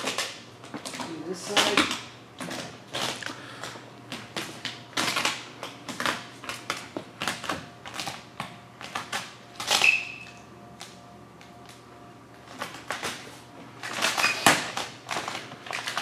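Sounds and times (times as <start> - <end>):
brief squeak: 9.8 - 10.4, 14.2 - 14.5
vinyl film crinkling and rustling: 12.4 - 16.0.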